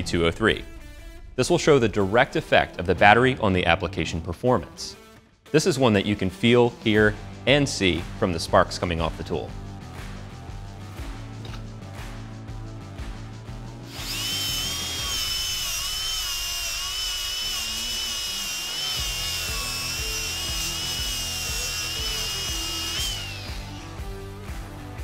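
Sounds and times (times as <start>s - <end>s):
angle grinder cutting metal: 13.9s - 24.7s.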